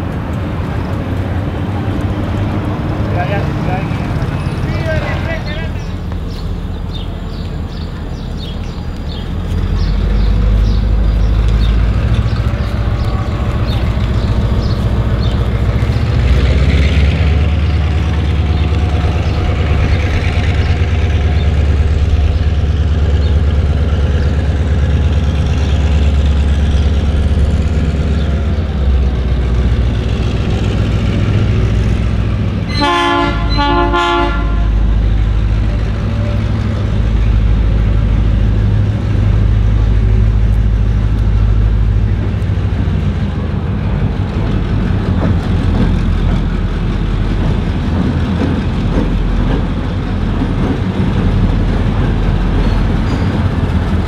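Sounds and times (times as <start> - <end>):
diesel locomotive engine rumbling: 0.0 - 54.0
train horn blasts: 32.7 - 34.9.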